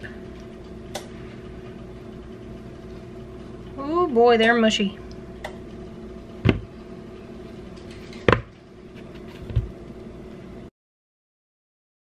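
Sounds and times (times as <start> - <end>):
steady background hum: 0.0 - 10.7
bananas thudding into bowl: 6.4 - 6.7.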